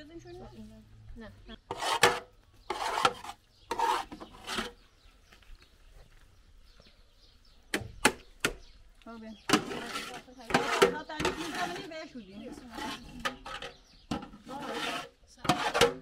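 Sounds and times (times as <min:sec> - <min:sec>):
metal ladle scraping a pot: 0:01.6 - 0:04.8, 0:09.5 - 0:16.0.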